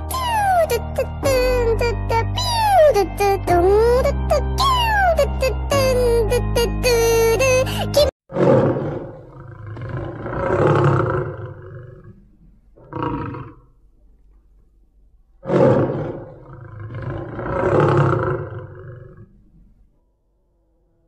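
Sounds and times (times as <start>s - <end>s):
children's music: 0.0s - 8.2s
lion roar: 8.3s - 12.2s, 12.8s - 13.7s, 15.4s - 19.7s.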